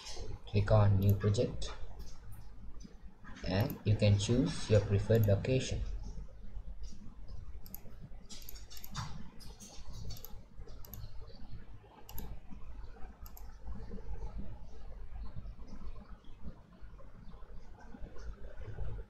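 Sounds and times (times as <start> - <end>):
low background hum: 0.0 - 19.0
computer mouse clicking: 1.0 - 1.3, 5.1 - 5.4, 6.8 - 11.4, 12.0 - 14.4.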